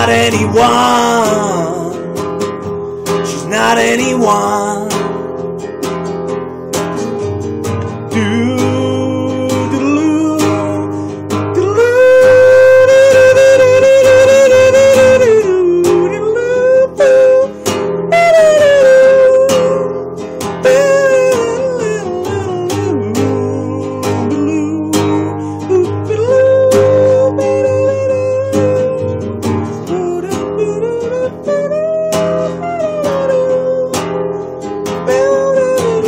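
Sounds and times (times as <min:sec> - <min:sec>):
man singing wordless melody: 0:00.0 - 0:05.3, 0:07.8 - 0:34.2, 0:34.9 - 0:36.0
acoustic guitar strumming: 0:00.0 - 0:36.0.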